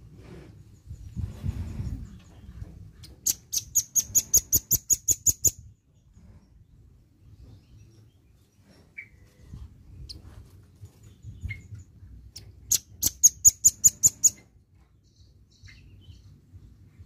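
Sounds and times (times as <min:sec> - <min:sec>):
bird chirps: 0:02.2 - 0:06.5, 0:11.1 - 0:16.4.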